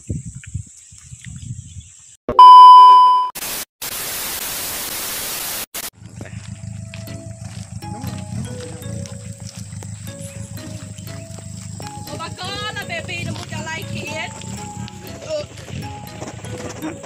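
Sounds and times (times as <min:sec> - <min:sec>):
loud steady beep: 0:02.3 - 0:03.3.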